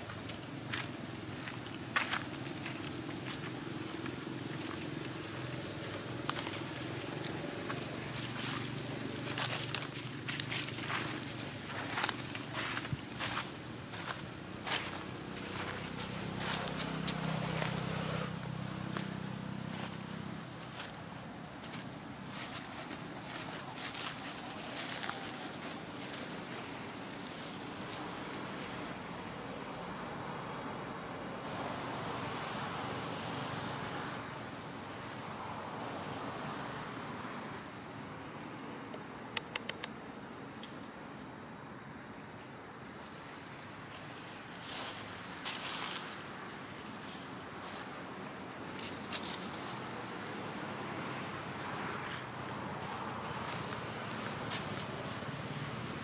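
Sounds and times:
insects droning: 0.0s - 56.0s
quick clicks: 39.3s - 40.0s.

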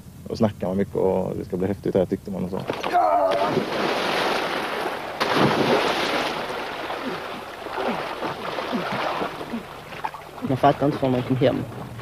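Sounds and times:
water sloshing and splashing: 2.6s - 12.0s
rushing water: 2.7s - 12.0s.

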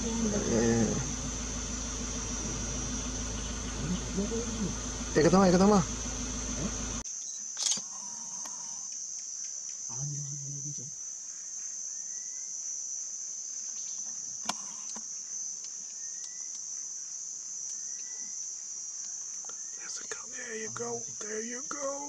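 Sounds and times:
low hum: 0.0s - 7.0s
insects droning: 0.0s - 22.0s
low voice: 19.9s - 22.0s.

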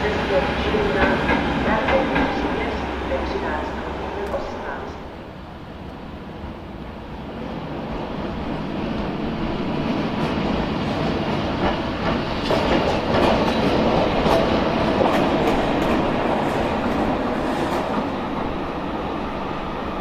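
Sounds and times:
electric locomotive passing: 0.0s - 20.0s
wheels clacking over rail joints: 10.2s - 18.1s.

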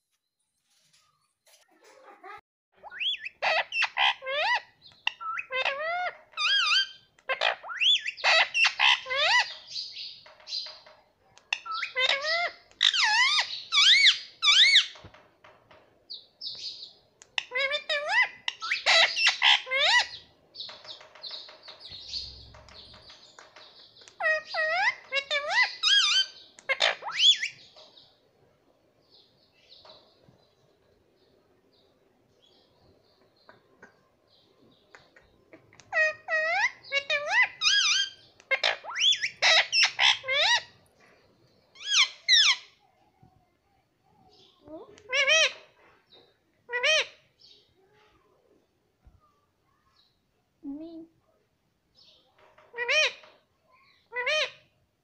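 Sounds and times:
parakeet chirping and chattering: 2.2s - 28.1s, 32.4s - 42.8s, 44.3s - 47.9s, 52.0s - 54.7s
parakeet squawking: 2.8s - 9.7s, 11.5s - 15.0s, 17.4s - 20.2s, 24.2s - 27.7s, 35.9s - 40.8s, 46.7s - 47.2s, 52.8s - 53.4s.

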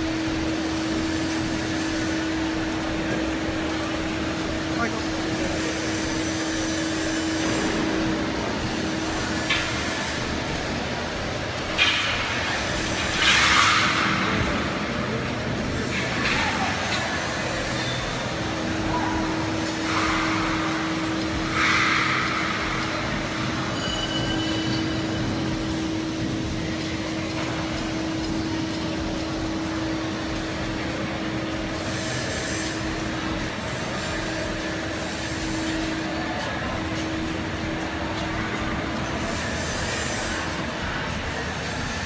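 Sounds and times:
steady mechanical drone: 0.0s - 42.0s
held tone: 23.7s - 25.0s.

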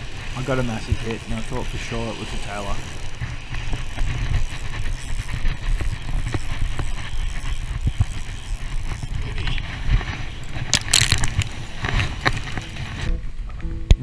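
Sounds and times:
fishing reel winding: 0.0s - 9.4s, 10.6s - 12.7s
reel clicks: 0.2s - 12.8s.

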